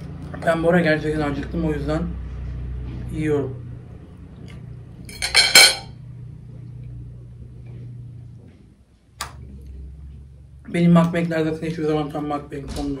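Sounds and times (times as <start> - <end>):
metal fork clinking on dishes: 5.1 - 5.9.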